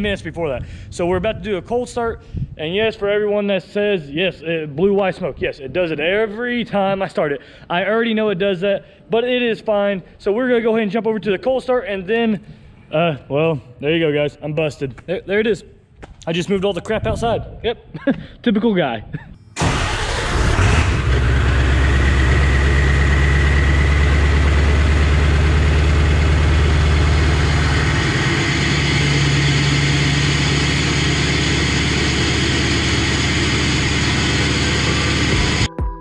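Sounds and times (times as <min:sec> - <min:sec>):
diesel engine idling: 0:19.6 - 0:35.7.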